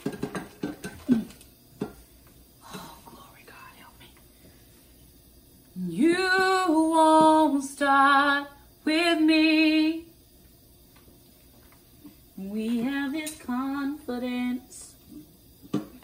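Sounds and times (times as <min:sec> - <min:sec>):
woman singing unaccompanied: 0:05.8 - 0:10.2, 0:12.4 - 0:15.2.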